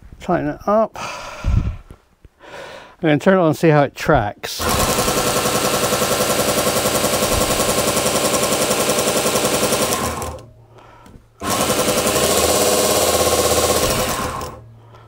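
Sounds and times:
belt grinder running: 4.6s - 10.5s, 11.4s - 14.7s.

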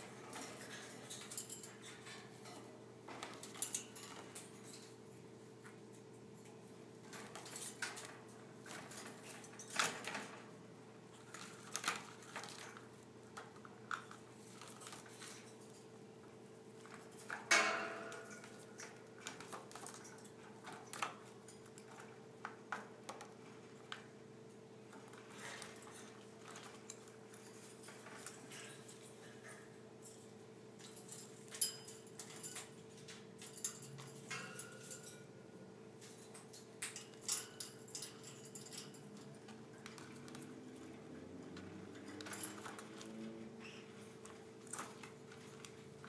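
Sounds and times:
cage clatter: 0.0s - 35.4s, 36.0s - 46.0s
metallic clinks on cage bars: 0.2s - 2.7s, 17.0s - 19.0s, 25.3s - 35.3s, 36.0s - 43.3s.

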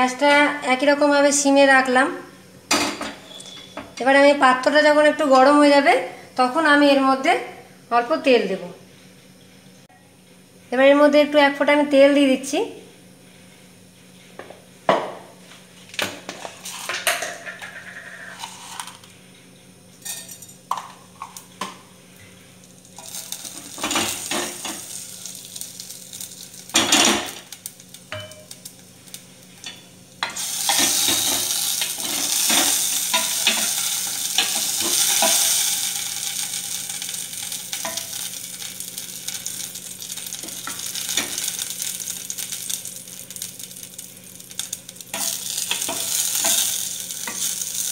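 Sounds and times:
seeds sizzling in hot oil: 16.4s - 19.1s, 20.0s - 47.9s
utensils tapping a pan: 23.0s - 25.0s, 26.7s - 43.7s, 44.5s - 47.9s.

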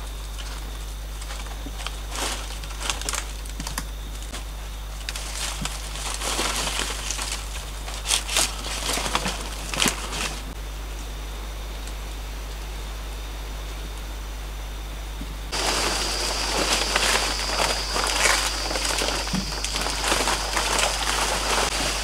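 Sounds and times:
dry palm fronds rustling: 0.0s - 11.0s, 15.5s - 22.0s.

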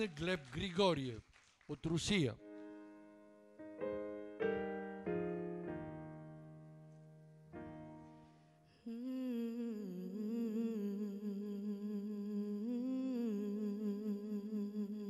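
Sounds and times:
keyboard chord: 2.4s - 8.4s
girl humming into microphone: 8.8s - 15.0s.

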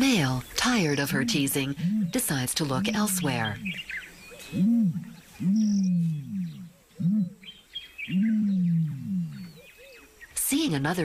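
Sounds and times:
small birds chirping: 0.0s - 11.0s
large animal low calls: 0.9s - 3.8s, 4.5s - 7.5s, 8.1s - 9.7s.

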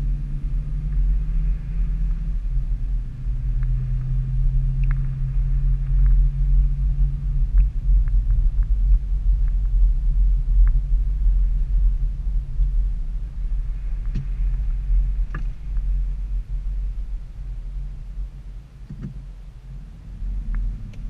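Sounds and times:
vehicle rumble on slushy road: 0.0s - 21.0s.

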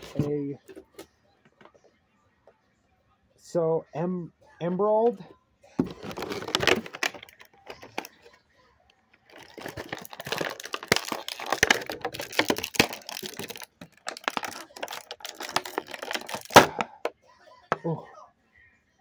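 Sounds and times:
plastic packaging crackling: 5.8s - 8.3s, 9.2s - 16.9s.

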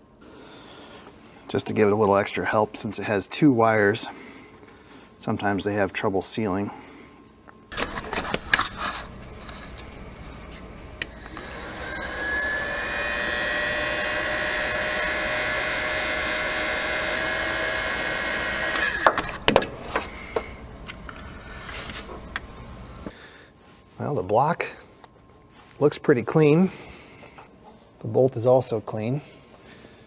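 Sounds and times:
power tool motor whine: 7.7s - 20.7s.

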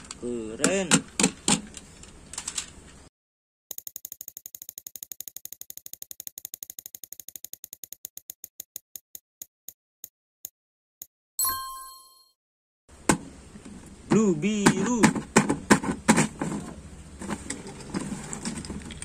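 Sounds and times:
prize wheel ratchet ticking: 3.7s - 8.8s.

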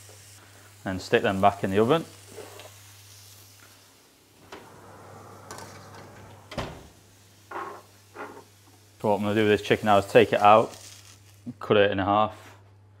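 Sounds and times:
oven door shutting with thud: 4.5s - 7.0s.

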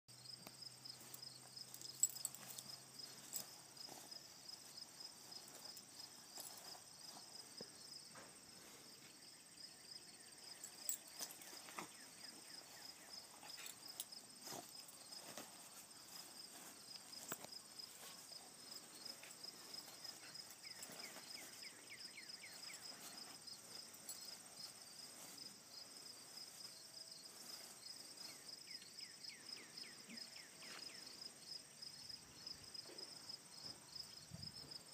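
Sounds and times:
faint crickets chirping: 0.1s - 34.9s
soft taps and rustles: 13.4s - 18.2s.

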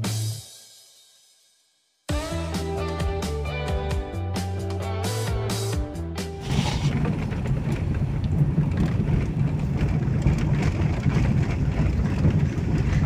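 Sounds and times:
car rumbling on dirt road: 6.2s - 13.0s
knocks and rattles: 6.4s - 13.0s.

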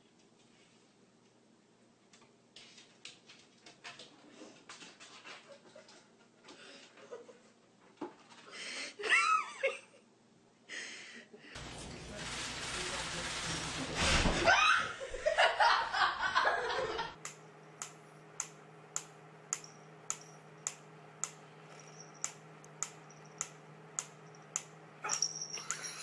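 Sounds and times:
laughter: 7.0s - 7.6s, 8.9s - 10.1s, 14.4s - 17.2s, 25.6s - 26.0s
mechanical metronome ticking: 17.2s - 21.4s, 22.2s - 24.8s.

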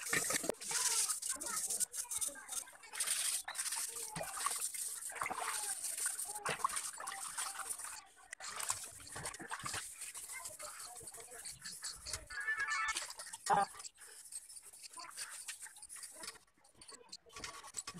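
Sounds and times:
water splashing: 0.0s - 13.7s
water trickling: 0.0s - 16.2s
scourer scrubbing metal: 0.0s - 17.9s.

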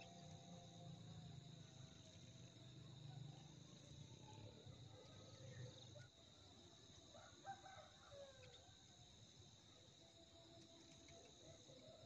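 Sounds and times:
crickets chirping: 0.0s - 12.0s
distant rooster crowing: 7.1s - 9.0s.

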